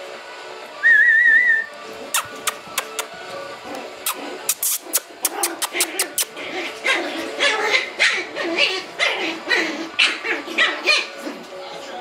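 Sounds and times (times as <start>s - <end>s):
puppies yipping and barking: 1.3s - 12.0s
sharp clicks: 2.2s - 3.1s.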